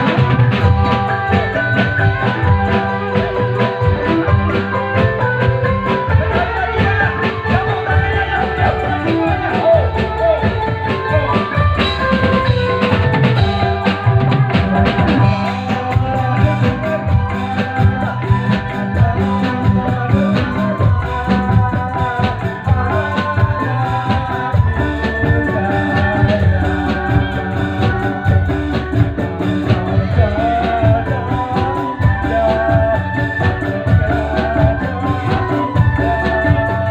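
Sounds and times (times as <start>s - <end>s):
drum kit beat: 0.0s - 36.9s
keyboard melody: 0.0s - 36.9s
person singing into a microphone: 0.0s - 36.9s.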